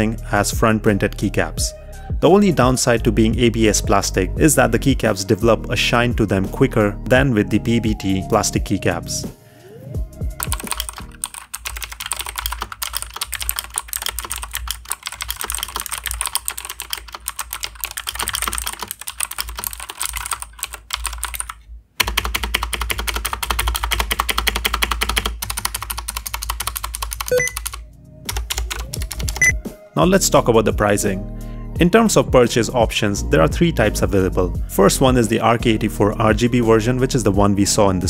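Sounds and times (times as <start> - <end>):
mechanical keyboard typing: 10.4 - 29.6.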